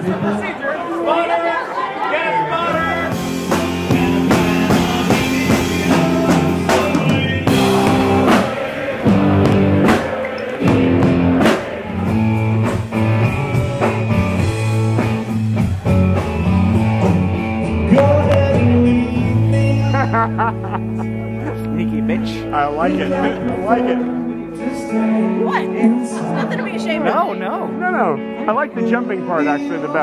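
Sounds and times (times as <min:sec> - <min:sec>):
electric guitar: 0:02.6 - 0:30.0
drum kit beat: 0:02.7 - 0:21.6
person singing: 0:03.0 - 0:10.4, 0:17.7 - 0:27.8.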